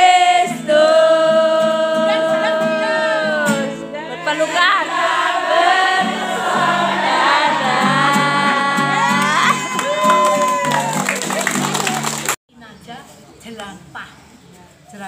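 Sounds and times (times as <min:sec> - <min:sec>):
women singing: 0:00.0 - 0:10.5
strummed acoustic guitar: 0:05.4 - 0:10.2.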